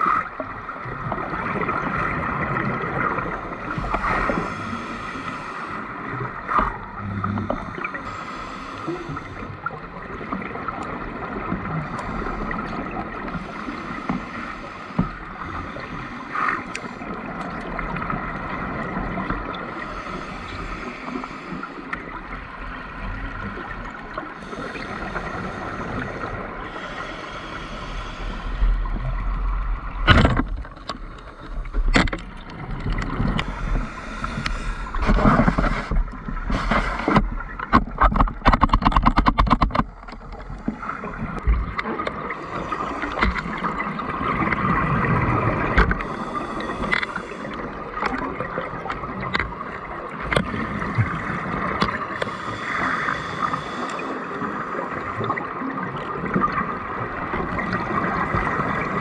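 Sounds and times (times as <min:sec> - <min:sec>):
bubbles gurgling underwater: 0:00.0 - 0:04.8, 0:39.8 - 0:46.8, 0:54.9 - 0:59.0
steady bubble hiss: 0:00.0 - 0:30.0, 0:32.5 - 0:37.7, 0:39.9 - 0:59.0
bubbles crackling: 0:28.8 - 0:52.1.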